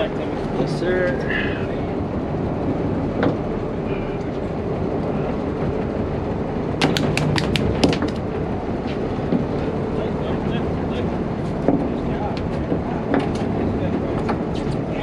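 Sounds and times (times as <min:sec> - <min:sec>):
fishing boat engine rumble: 0:00.0 - 0:15.0
sharp taps: 0:06.8 - 0:08.2.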